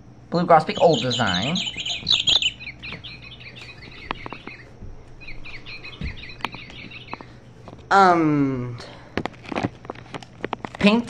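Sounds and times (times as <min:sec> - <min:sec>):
recorded birdsong from toy speaker: 0:00.3 - 0:07.8.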